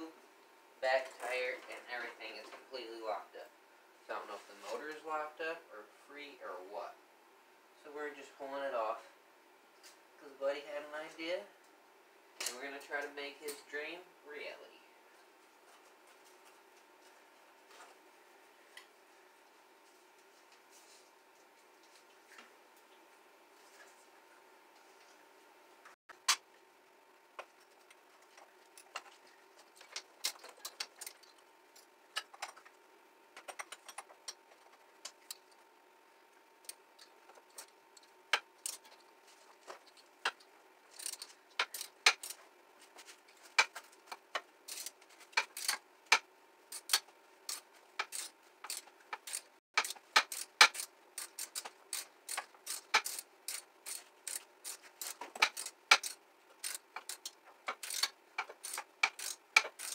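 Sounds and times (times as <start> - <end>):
socket ratchet clicking: 44.7 - 59.9.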